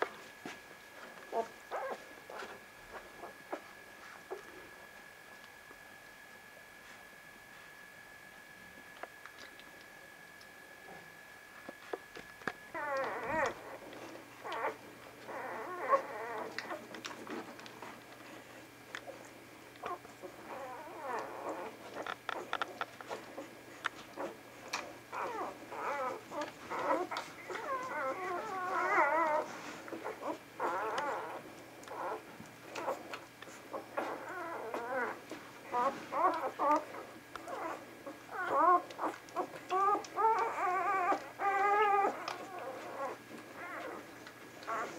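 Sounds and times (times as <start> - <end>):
puppies squeaking and whimpering: 1.3 - 3.6, 12.7 - 18.5, 19.1 - 44.9.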